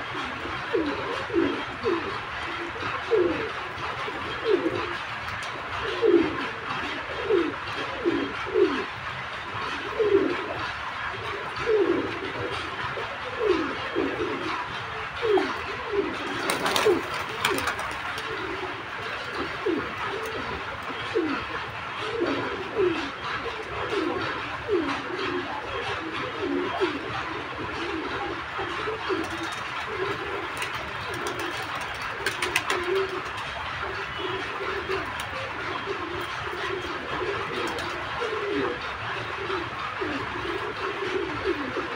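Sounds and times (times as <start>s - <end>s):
pigeons cooing: 0.0s - 41.9s.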